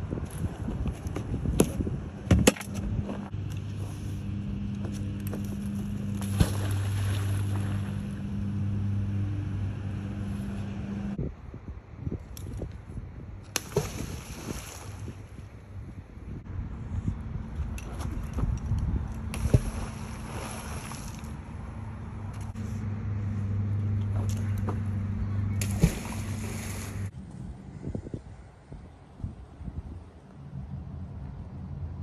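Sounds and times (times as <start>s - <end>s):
wind on microphone: 0.0s - 3.4s, 10.2s - 21.3s, 25.7s - 30.3s
low engine-like hum: 1.3s - 12.0s, 14.9s - 32.0s.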